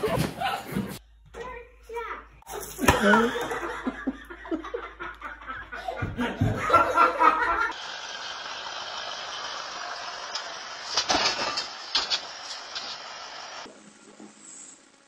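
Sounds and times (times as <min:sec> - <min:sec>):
people laughing: 0:02.6 - 0:07.8.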